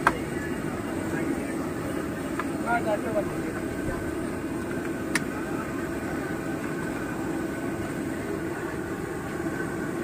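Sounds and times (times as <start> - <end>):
low rumbling background noise: 0.0 - 10.0.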